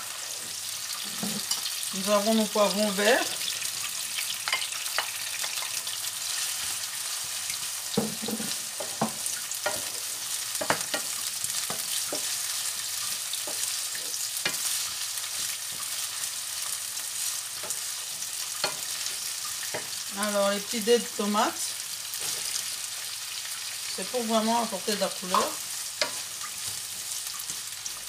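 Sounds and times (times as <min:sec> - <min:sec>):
vegetables sizzling in oil: 0:00.0 - 0:28.0
wooden spoon knocking on pan: 0:07.9 - 0:09.9, 0:10.6 - 0:11.1.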